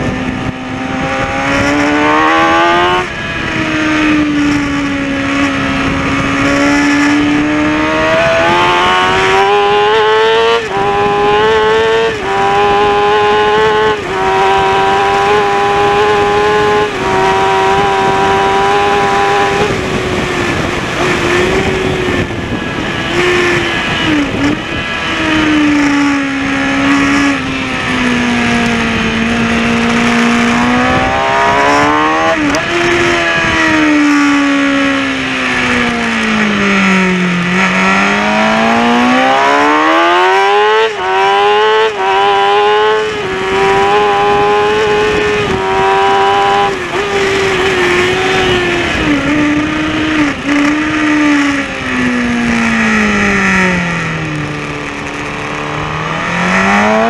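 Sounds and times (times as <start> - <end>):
motorcycle engine at racing revs: 0.0 - 57.0
wind rush on microphone: 0.0 - 57.0.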